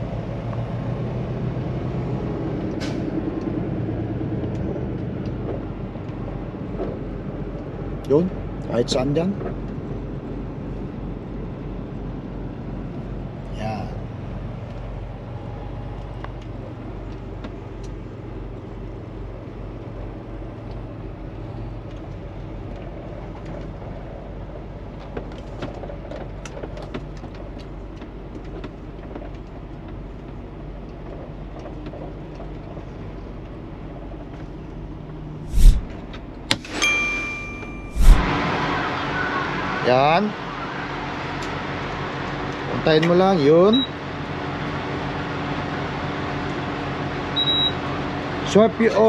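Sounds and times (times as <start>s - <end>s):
short beep: 36.6s - 38.4s.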